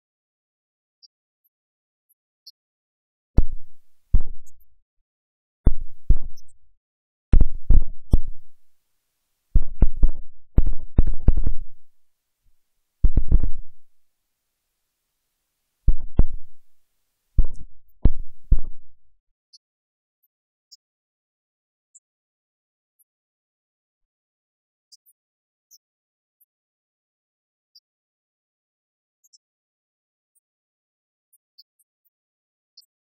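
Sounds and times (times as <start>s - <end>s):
loud sharp thumps with boom: 3.4s - 4.5s, 5.7s - 6.4s, 7.3s - 8.5s, 9.6s - 11.6s, 13.0s - 13.8s, 15.9s - 16.6s.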